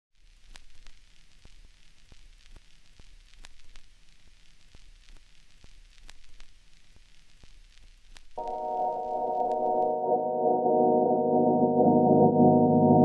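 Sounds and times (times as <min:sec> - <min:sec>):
vinyl record hiss and crackle: 0:00.1 - 0:13.0
vinyl record pops: 0:00.2 - 0:10.1.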